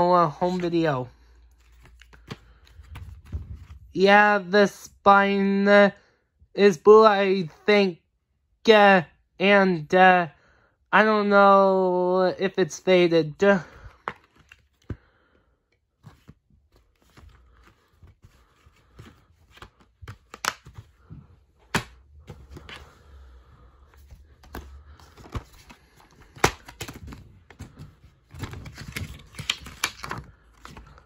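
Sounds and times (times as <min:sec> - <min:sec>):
paper inserts rustling: 0:00.3 - 0:03.9, 0:13.7 - 0:15.2, 0:15.8 - 0:31.0
plastic cases clicking and snapping: 0:19.5 - 0:20.9, 0:28.4 - 0:30.8.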